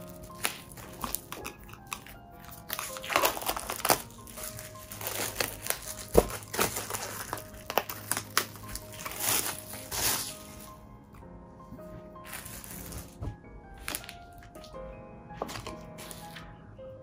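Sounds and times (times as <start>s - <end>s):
plastic shrink-wrap crinkling: 0.0s - 10.8s, 12.2s - 13.2s, 13.8s - 14.8s
background music: 0.0s - 17.0s.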